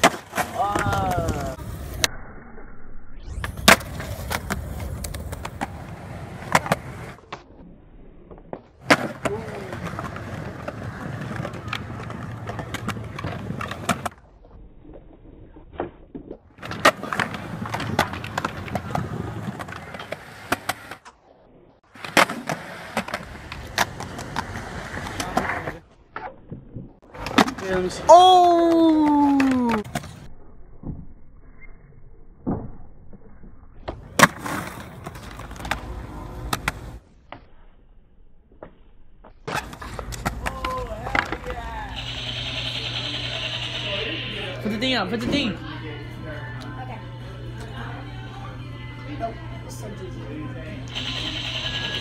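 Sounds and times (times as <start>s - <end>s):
skateboard wheels rolling on concrete: 0.0s - 2.1s, 3.2s - 30.9s, 33.4s - 37.6s, 38.5s - 45.6s
skateboard landing smack: 3.4s - 5.7s, 22.0s - 24.2s
skateboard deck pops and clacks: 39.5s - 41.6s.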